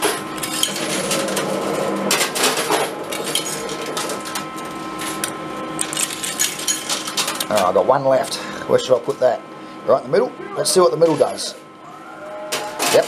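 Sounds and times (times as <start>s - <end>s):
arcade machine hum: 0.0s - 13.0s
coins clinking: 5.8s - 7.4s.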